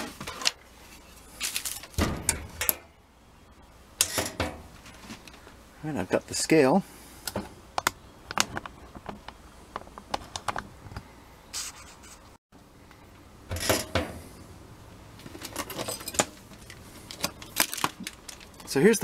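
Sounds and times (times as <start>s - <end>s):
objects clicking and rattling: 15.2s - 18.8s.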